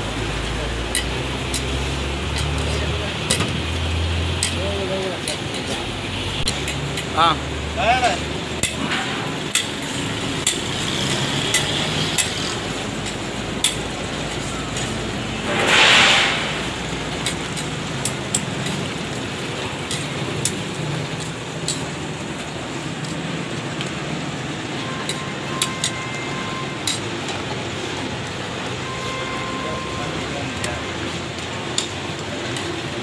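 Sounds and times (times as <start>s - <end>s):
frying sizzle: 0.0s - 33.0s
street noise: 0.0s - 33.0s
metal tongs clicking and scraping: 0.9s - 3.4s, 4.3s - 4.6s, 6.4s - 7.1s, 8.6s - 15.0s, 17.1s - 19.0s, 19.9s - 22.0s, 25.0s - 26.0s, 26.8s - 27.4s, 31.7s - 32.7s
loud hissing rush: 15.2s - 23.0s.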